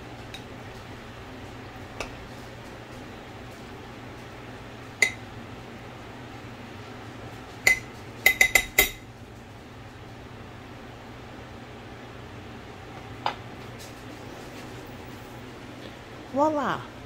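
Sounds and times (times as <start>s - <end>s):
spoon clinking against ceramic bowl: 5.0s - 5.2s, 7.6s - 9.0s.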